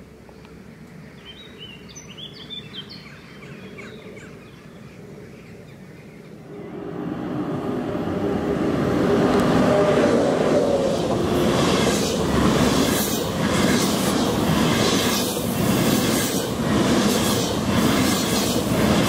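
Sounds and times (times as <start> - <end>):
steady background noise: 4.0 - 19.0
high-speed train approaching: 6.4 - 19.0.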